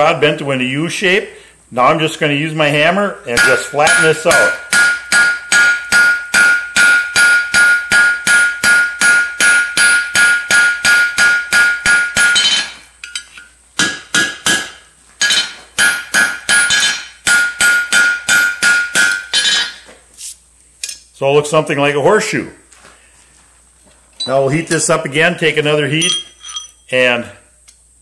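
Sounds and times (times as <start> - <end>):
hammer striking steel on anvil: 3.3 - 19.8, 26.0 - 26.8
ringing anvil tone: 3.3 - 19.8, 25.9 - 26.9.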